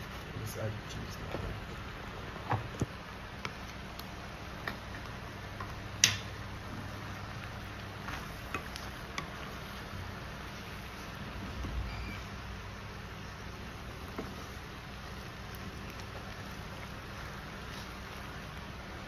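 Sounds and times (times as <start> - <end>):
steady background noise: 0.0 - 19.0
wooden spoon stirring thick sauce: 3.3 - 11.6, 12.3 - 19.0.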